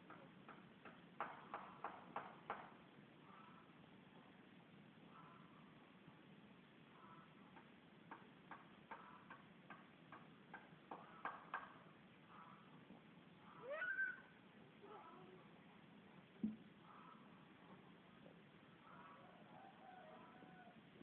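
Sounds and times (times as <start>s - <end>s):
cat meowing: 13.6s - 14.3s.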